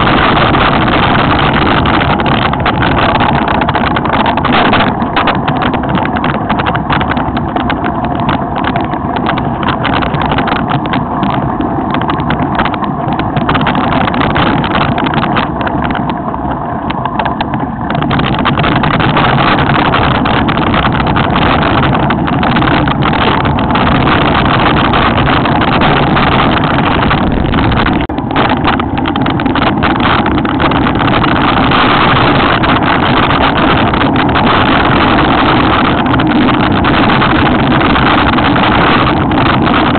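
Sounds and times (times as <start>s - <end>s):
bike knocks and rattles: 0.0s - 39.9s
wind and tyres rushing: 0.0s - 39.9s.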